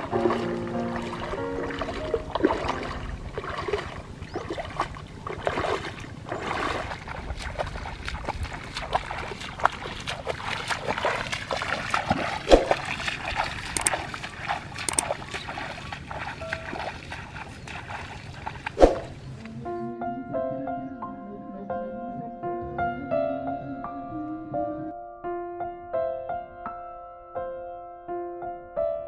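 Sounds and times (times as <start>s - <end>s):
wading through water: 0.0s - 19.9s
sharp clicks: 13.7s - 14.0s, 14.8s - 15.2s.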